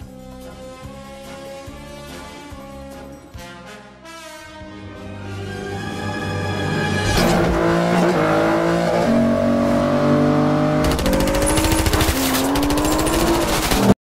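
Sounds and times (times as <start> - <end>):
sports car engines revving: 7.3 - 13.9.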